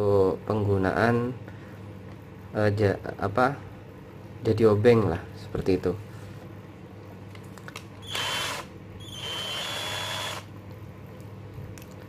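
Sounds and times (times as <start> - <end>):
cordless drill motor whine: 8.0 - 10.5.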